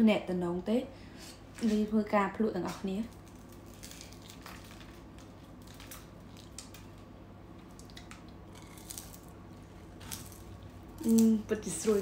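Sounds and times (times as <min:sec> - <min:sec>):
steady low hum: 0:00.0 - 0:12.0
fried dough twists crackling: 0:02.6 - 0:12.0.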